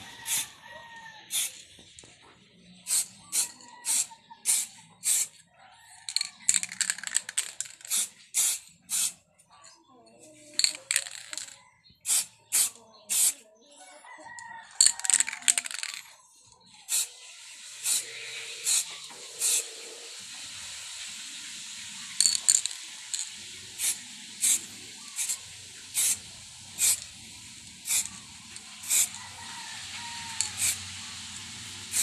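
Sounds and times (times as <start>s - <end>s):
hissing spray bursts: 0.2s - 0.5s, 1.3s - 1.6s, 2.8s - 5.4s, 7.8s - 9.2s, 12.0s - 13.4s, 16.9s - 32.0s.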